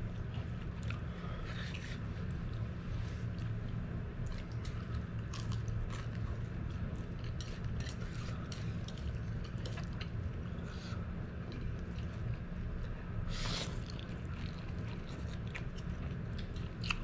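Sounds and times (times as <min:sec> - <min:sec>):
steady low hum: 0:00.0 - 0:17.0
chewing noodles: 0:00.2 - 0:17.0.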